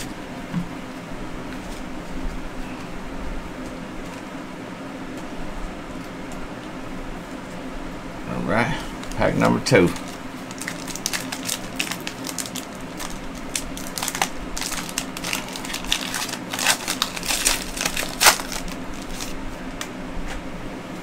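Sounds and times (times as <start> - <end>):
wrapper tearing and crinkling: 9.0 - 19.8.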